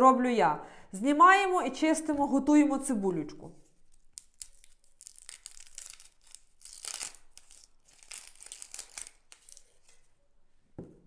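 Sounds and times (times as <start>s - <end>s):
onion skins crackling and tearing: 3.8s - 10.1s.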